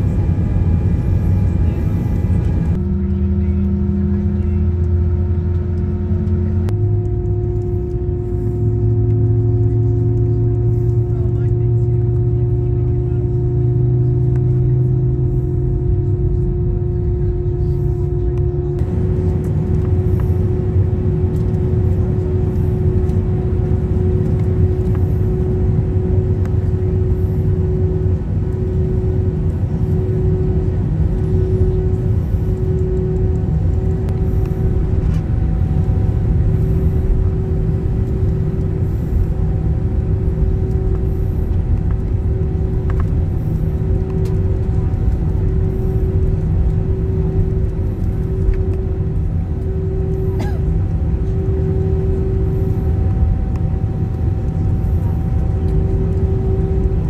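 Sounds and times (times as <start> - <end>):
jet engine cabin drone: 0.0 - 57.0.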